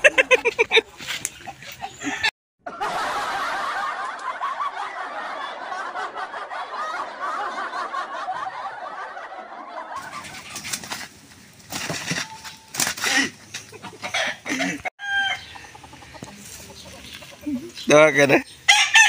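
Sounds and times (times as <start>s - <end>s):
canned crowd laughter: 0.0s - 10.6s
faint outdoor ambience: 0.0s - 19.0s.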